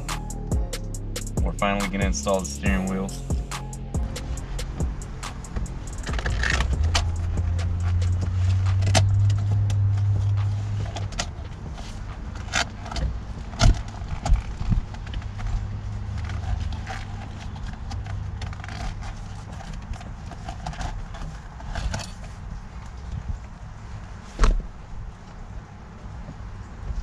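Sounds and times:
low hum: 0:00.0 - 0:17.8
plastic clicks and scrapes: 0:05.4 - 0:23.0.

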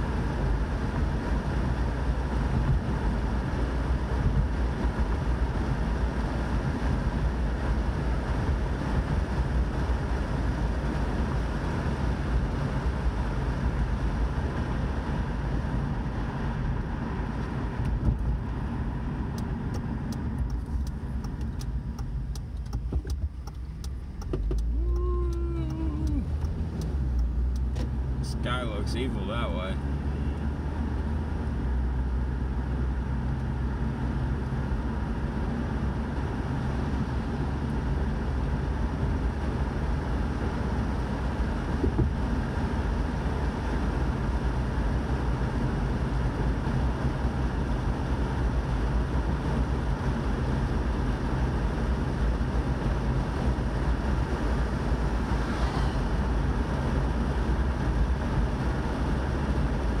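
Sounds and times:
car engine and road noise: 0:00.0 - 1:00.0.

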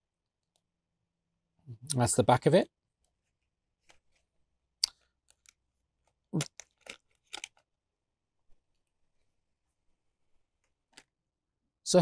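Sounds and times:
plastic blister pack crackling: 0:06.4 - 0:07.7.

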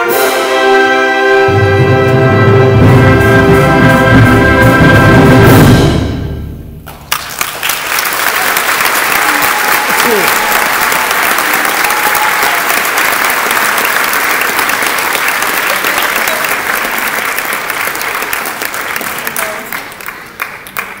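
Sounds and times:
audience applauding: 0:06.8 - 0:21.0.

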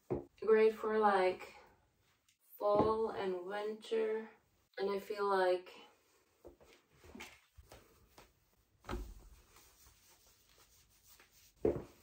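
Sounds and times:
clothing rustling and scraping: 0:06.0 - 0:12.0.

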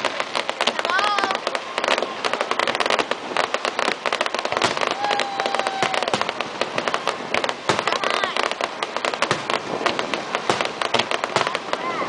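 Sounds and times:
fireworks crackling and popping: 0:00.0 - 0:12.0
firework whistle: 0:04.6 - 0:06.4.

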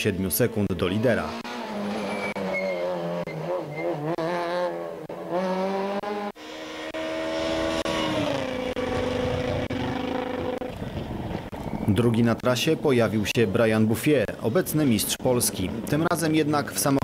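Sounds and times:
rally car engine revving: 0:00.5 - 0:11.6.

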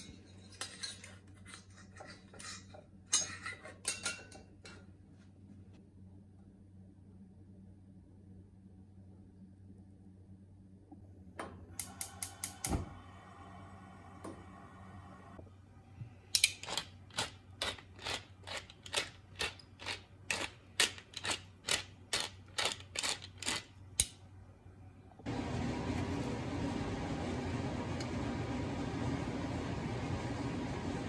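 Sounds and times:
pepper mill grinding: 0:16.4 - 0:23.8.

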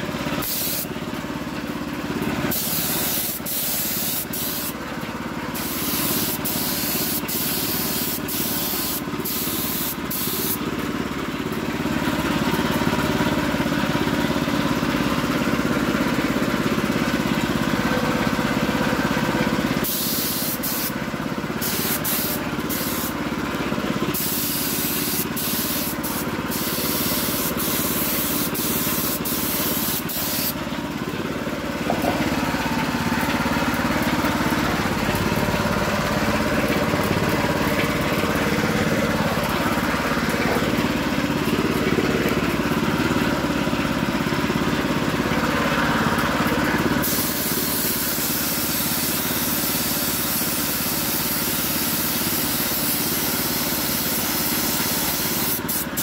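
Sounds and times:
paint spray gun hissing: 0:00.4 - 0:01.0, 0:02.4 - 0:10.7, 0:19.8 - 0:23.3, 0:24.1 - 0:30.7, 0:47.0 - 0:56.0.

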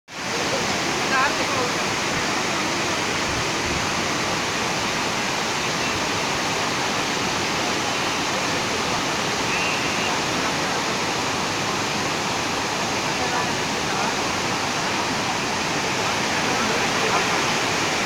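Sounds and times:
waterfall rushing: 0:00.1 - 0:18.0.

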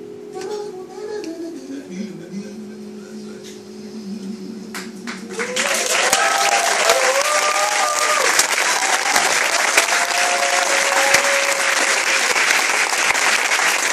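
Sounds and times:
audience applauding: 0:04.8 - 0:13.9
people whooping and cheering: 0:05.3 - 0:13.9.

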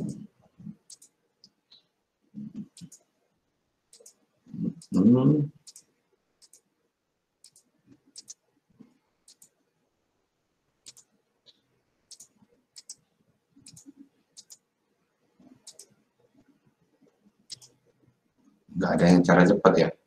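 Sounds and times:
faint computer mouse clicking: 0:00.8 - 0:01.9, 0:02.6 - 0:03.1, 0:03.9 - 0:04.2, 0:05.6 - 0:06.7, 0:07.4 - 0:08.4, 0:09.2 - 0:09.6, 0:10.8 - 0:13.0, 0:13.6 - 0:14.6, 0:15.4 - 0:16.0, 0:17.5 - 0:17.8.

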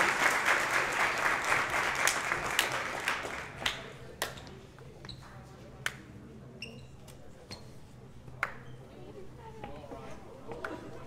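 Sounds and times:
audience applauding: 0:00.0 - 0:03.7.

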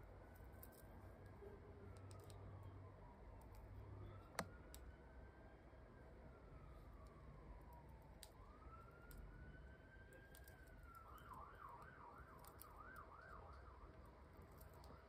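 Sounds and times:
faint emergency vehicle siren: 0:00.0 - 0:15.0
crochet hook clicking: 0:04.3 - 0:04.8.

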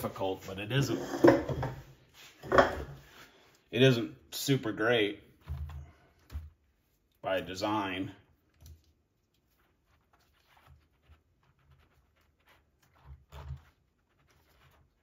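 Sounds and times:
faint clicks of handling plastic: 0:08.4 - 0:09.6.

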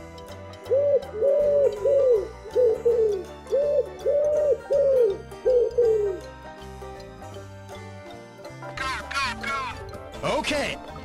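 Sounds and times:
background music: 0:00.0 - 0:11.0
toy pigeon electronic cooing: 0:00.7 - 0:06.3.

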